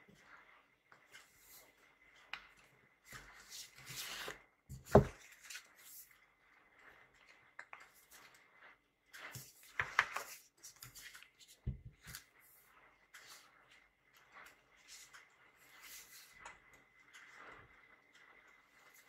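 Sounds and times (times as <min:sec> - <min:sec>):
book covers sliding and rustling: 0:03.0 - 0:06.1, 0:09.1 - 0:13.5, 0:14.4 - 0:16.4
soft knocks of books: 0:04.7 - 0:05.2, 0:11.6 - 0:12.1
low thuds of book stack: 0:04.8 - 0:05.2.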